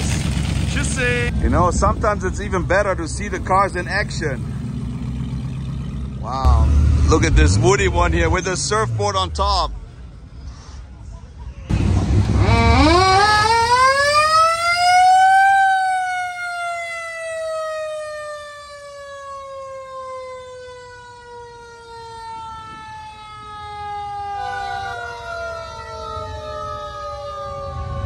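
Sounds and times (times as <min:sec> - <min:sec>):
siren wailing: 0:12.2 - 0:28.0.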